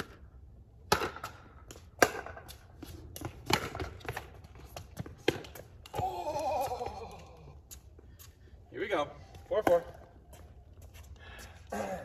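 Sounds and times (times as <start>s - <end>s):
footsteps: 1.7s - 11.7s
ball bouncing on hard court: 3.2s - 6.1s.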